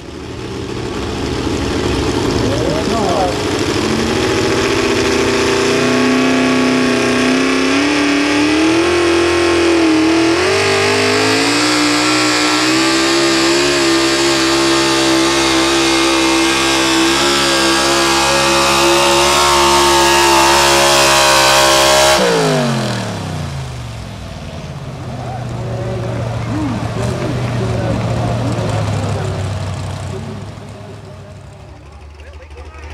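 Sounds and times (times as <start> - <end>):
truck engine revving under load: 0.0 - 32.9.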